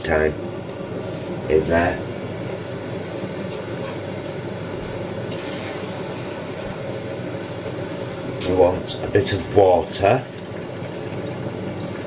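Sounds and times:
appliance humming: 0.0 - 12.0.

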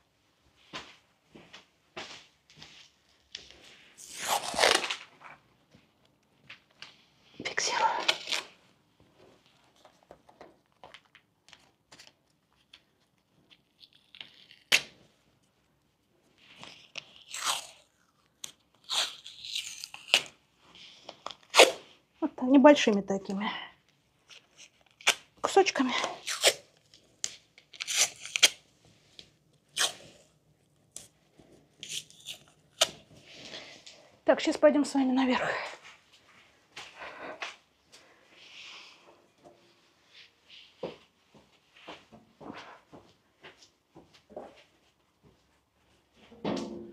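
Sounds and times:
adhesive tape tearing: 4.0 - 5.1, 18.4 - 20.4, 21.4 - 21.8, 26.0 - 26.7, 27.7 - 28.6, 29.7 - 30.0, 31.8 - 33.0.

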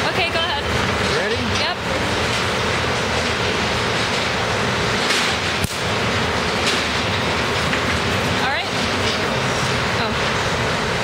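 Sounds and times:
loud steady rushing noise: 0.0 - 11.0
sharp electric discharge crack: 5.2 - 5.9.

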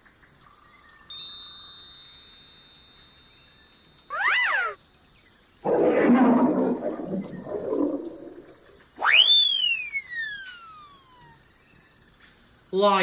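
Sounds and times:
whistle-like swooping tone: 4.1 - 4.8, 5.6 - 11.3
lion roaring: 5.7 - 8.6.

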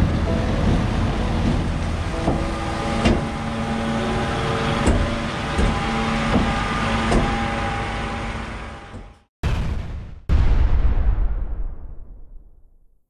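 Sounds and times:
truck diesel engine running: 0.0 - 9.3.

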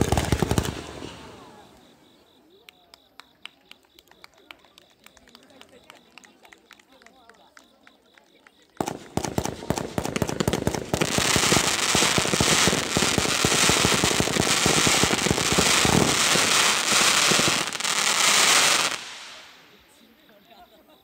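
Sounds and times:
fireworks popping and crackling: 0.0 - 1.8, 3.1 - 20.1
fireworks hiss: 8.8 - 20.1.

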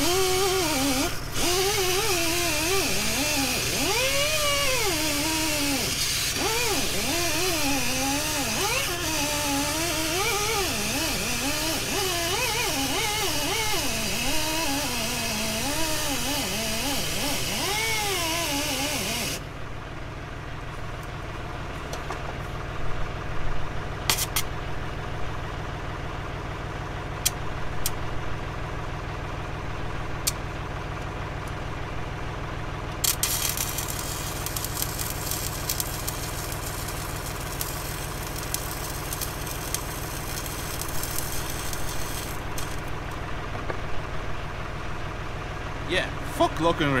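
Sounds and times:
crackling welding arc: 0.0 - 19.4, 33.0 - 43.2
engine hum: 0.0 - 47.0
welding arc strikes: 33.0 - 43.2.

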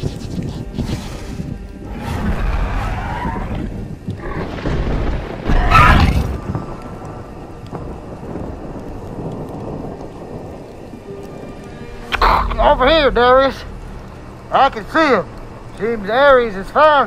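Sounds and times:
background music: 0.0 - 17.0
steady rain: 0.0 - 17.0
thunder rumbling: 1.5 - 17.0.

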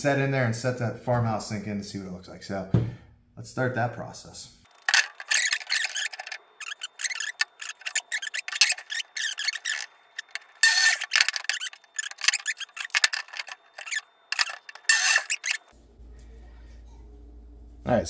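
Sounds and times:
wood and tape measure handling: 4.7 - 15.7
saw arm being moved: 4.9 - 15.7.

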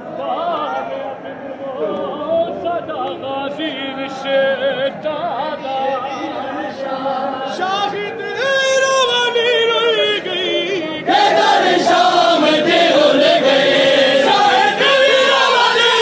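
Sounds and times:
man singing a lament: 0.0 - 11.1.

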